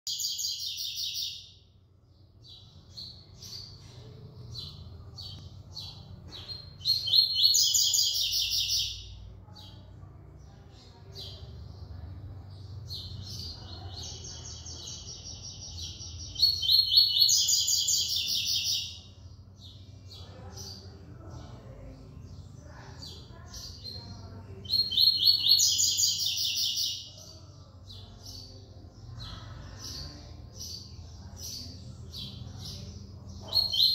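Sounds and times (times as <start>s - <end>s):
bird singing chirps and rattles: 29.2s - 33.9s.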